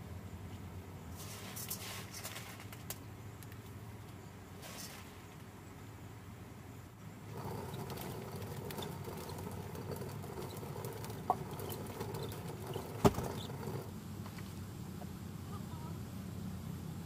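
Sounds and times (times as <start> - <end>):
stone mill grinding: 7.3 - 13.9
small ticks: 7.3 - 14.5.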